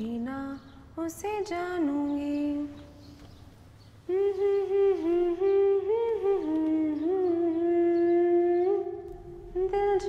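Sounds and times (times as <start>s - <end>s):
woman humming a slow melody: 4.1s - 10.0s.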